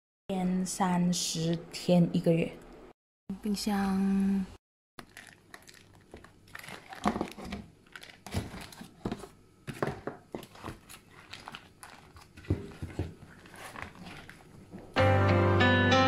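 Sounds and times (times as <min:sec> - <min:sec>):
plastic bag crinkling: 0:05.0 - 0:09.1, 0:10.3 - 0:15.0.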